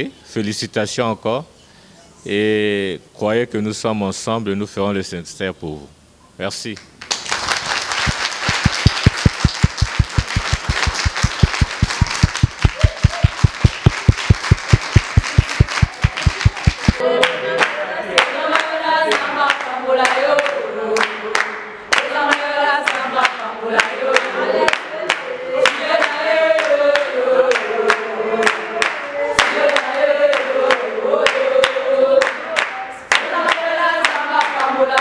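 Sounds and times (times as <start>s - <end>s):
women applauding: 7.0s - 17.0s
quick low beat: 8.0s - 17.0s
women singing unaccompanied: 15.0s - 35.0s.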